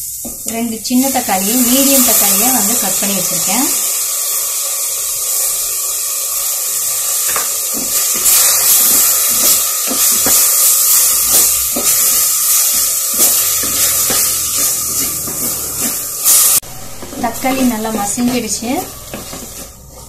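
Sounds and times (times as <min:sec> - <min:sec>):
onion and tomato sizzling in oil: 0:00.0 - 0:20.0
wooden spatula scraping pot: 0:13.2 - 0:20.0.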